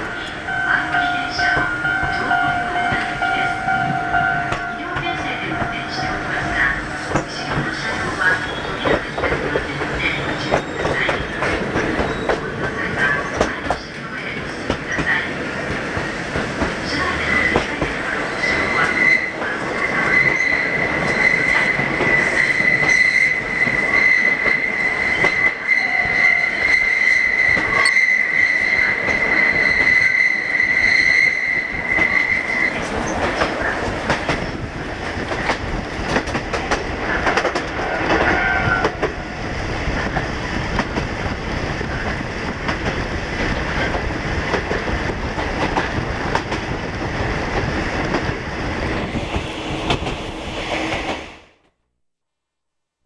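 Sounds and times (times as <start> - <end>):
electric train wheel and rail noise: 0.0 - 51.6
high-pitched wheel squeal: 18.4 - 33.2, 37.8 - 39.0.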